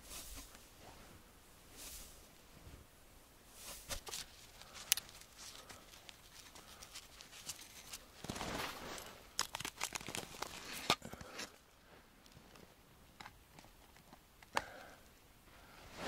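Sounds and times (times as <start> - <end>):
rustling and crinkling handling: 3.6 - 14.8.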